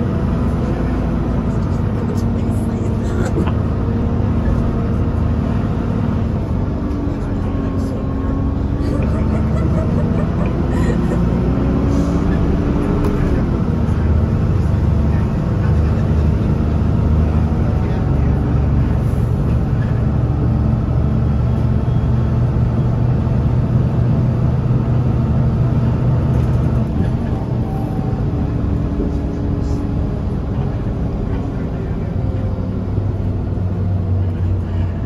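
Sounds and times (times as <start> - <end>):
bus diesel engine running: 0.0 - 35.0.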